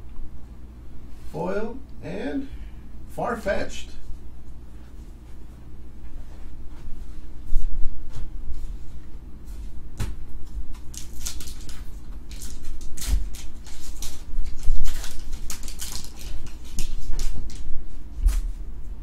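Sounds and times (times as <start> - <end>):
foil wrapper crinkling and tearing: 10.7 - 17.7.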